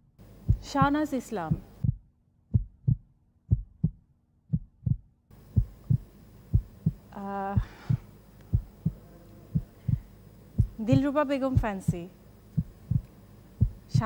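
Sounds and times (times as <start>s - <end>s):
heartbeat thumps: 0.0s - 14.0s.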